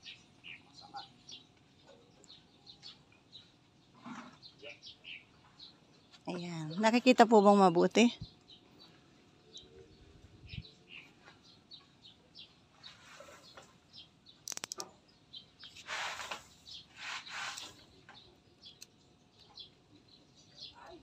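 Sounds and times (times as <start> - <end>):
small birds chirping: 0.0 - 21.0
quick clicks: 14.4 - 14.9.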